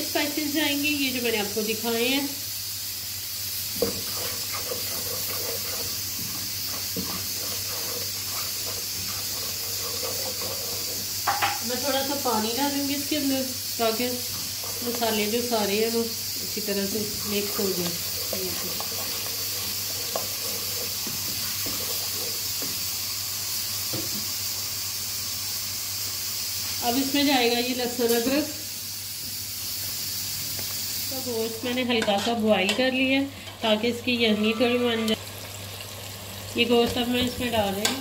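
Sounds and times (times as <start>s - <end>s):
food sizzling in hot oil: 0.0s - 38.0s
spoon knocking pot: 3.8s - 12.0s
wooden spoon scraping pot: 3.8s - 13.1s, 13.9s - 15.5s, 16.8s - 22.8s, 33.5s - 35.2s.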